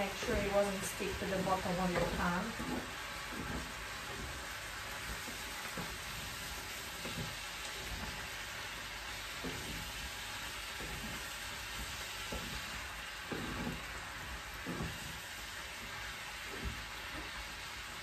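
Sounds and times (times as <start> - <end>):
chicken and peppers sizzling in a pan: 0.0 - 18.0
wooden spatula scraping a pan: 0.0 - 18.0.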